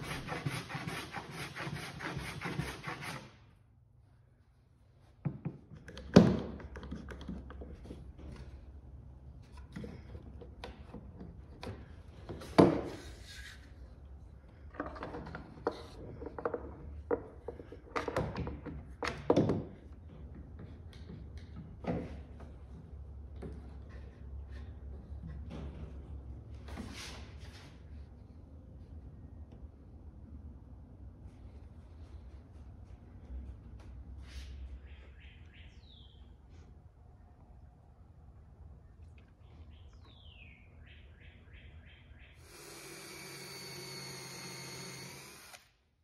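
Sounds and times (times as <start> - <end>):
hand plane scraping wood: 0.0 - 3.3.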